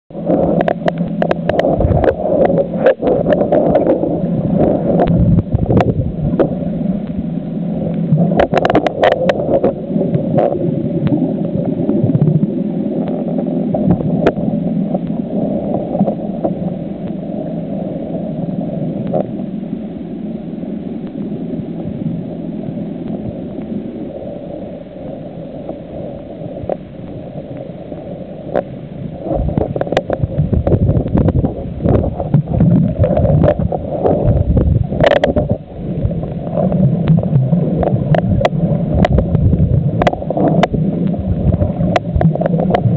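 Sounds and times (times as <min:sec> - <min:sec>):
muffled underwater noise: 0:00.1 - 0:42.9.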